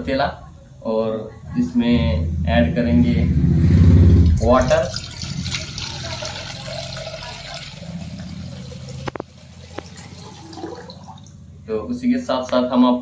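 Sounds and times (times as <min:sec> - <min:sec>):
water running into pot: 0:04.2 - 0:11.4.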